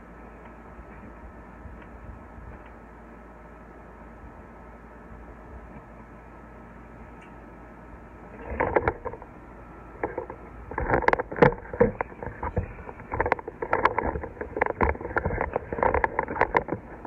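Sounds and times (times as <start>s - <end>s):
camera handling knocks and rubbing: 10.0s - 17.0s.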